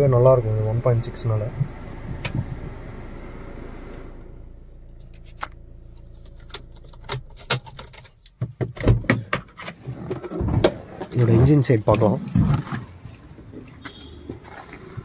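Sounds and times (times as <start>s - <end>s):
car engine idling: 0.0s - 8.1s.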